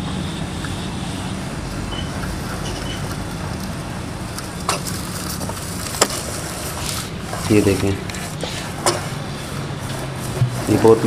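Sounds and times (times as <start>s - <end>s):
metal frame scraping wet plaster: 6.6s - 11.0s.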